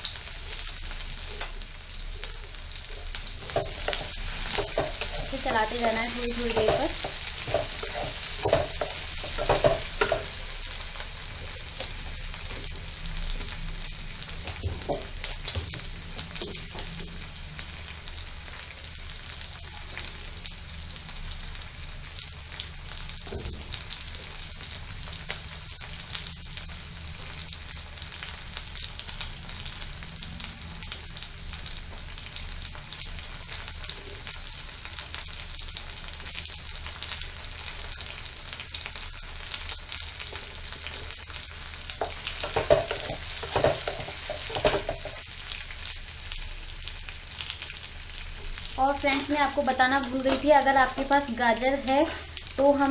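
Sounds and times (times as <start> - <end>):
vegetables sizzling in a pan: 0.0 - 52.9
spatula scraping a pan: 3.4 - 10.5, 42.1 - 45.2.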